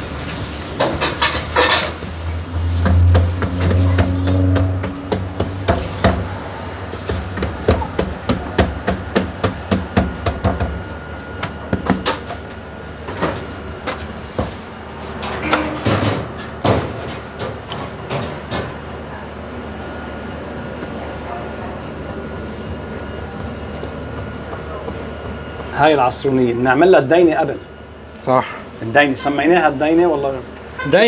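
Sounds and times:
low hum: 1.2 - 7.1.

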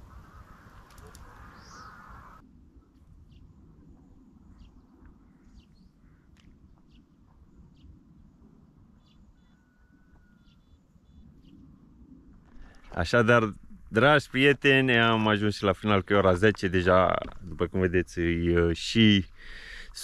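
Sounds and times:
small birds chirping: 0.0 - 2.4, 3.0 - 11.8
steady low rumble: 0.0 - 9.4, 10.8 - 20.0.

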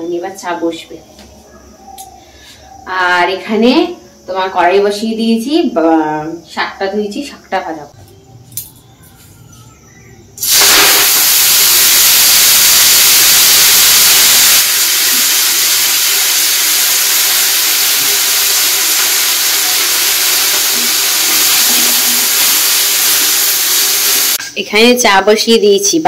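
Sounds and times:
greens sizzling in hot oil: 10.4 - 24.4.

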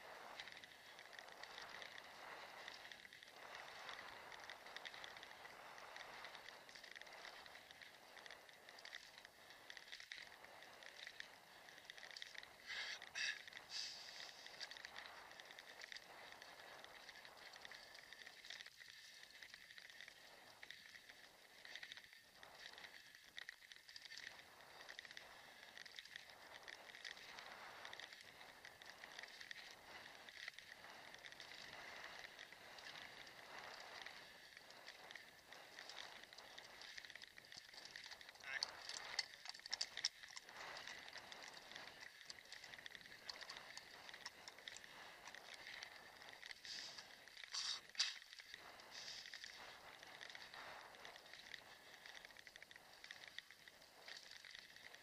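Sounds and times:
scooter wheels rolling hiss: 0.0 - 55.0
small rattling clicks: 0.1 - 55.0
kick scooter rattling over cobblestones: 28.0 - 55.0.

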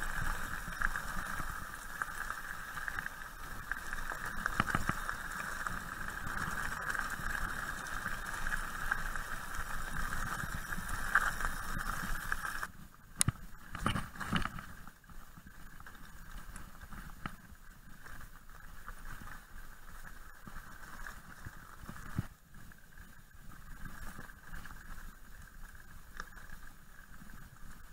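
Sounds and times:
bike crunching over gravel: 0.0 - 12.7.

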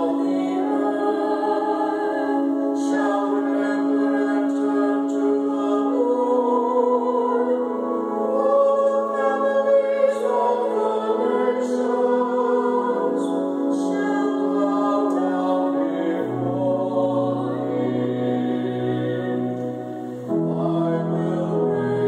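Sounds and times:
pipe organ: 0.0 - 22.0
man and woman singing: 13.8 - 19.6, 20.3 - 22.0.

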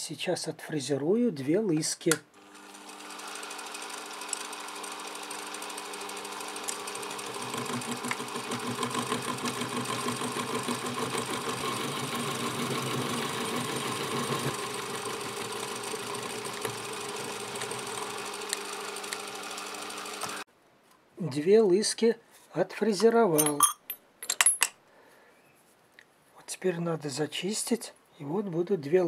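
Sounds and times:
milling machine motor hum: 2.4 - 20.4.

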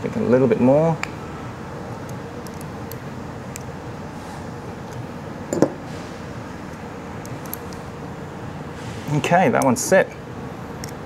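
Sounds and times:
steady low hum: 0.0 - 11.0
hex key metal clicks: 1.9 - 3.7, 6.7 - 7.9.

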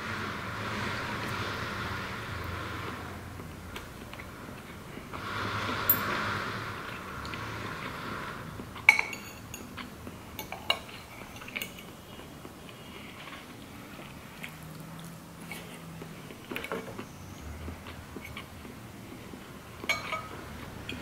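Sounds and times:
cutlery clinking on a plate: 8.9 - 11.9, 19.8 - 21.0.

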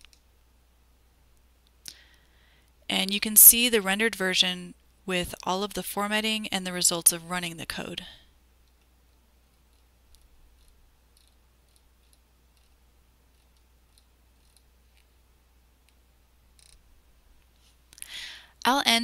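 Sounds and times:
low steady hum: 0.0 - 19.0
mouse scroll wheel clicks: 9.7 - 15.1, 16.6 - 16.8.

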